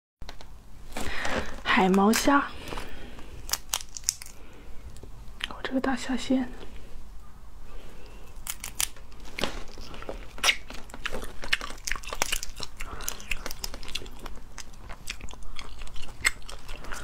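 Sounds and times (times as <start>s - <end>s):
crayfish shells cracking: 1.8s - 5.6s, 8.0s - 17.0s.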